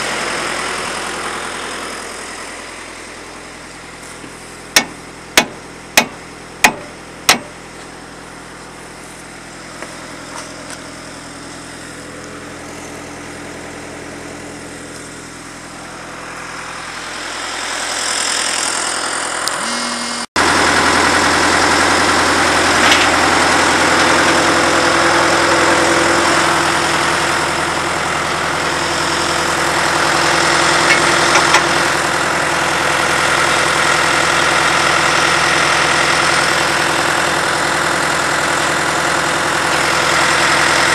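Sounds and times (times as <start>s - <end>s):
drill rig engine running: 0.0s - 40.9s
hammer striking metal: 4.8s - 7.6s.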